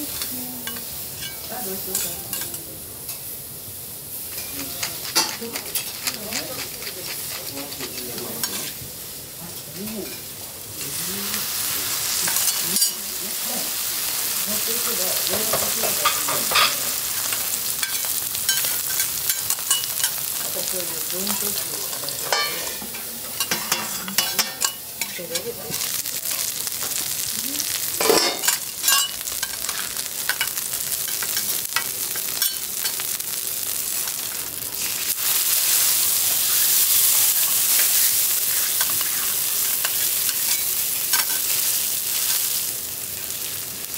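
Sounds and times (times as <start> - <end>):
steak sizzling on a griddle: 0.0 - 43.9
metal spatula scraping steel: 4.3 - 8.8, 21.3 - 26.0, 28.0 - 33.0, 36.2 - 42.5.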